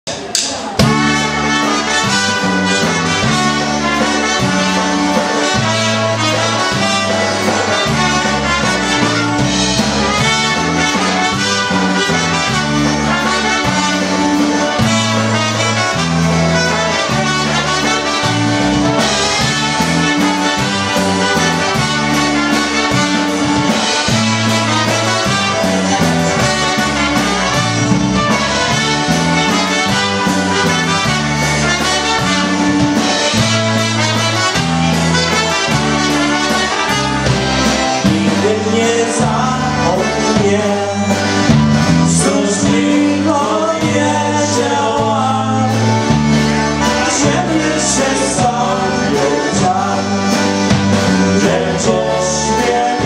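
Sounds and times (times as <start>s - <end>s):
drums: 0.0s - 53.0s
concertina: 0.1s - 53.0s
oom-pah bass line: 0.7s - 53.0s
trumpets playing melody: 0.8s - 53.0s.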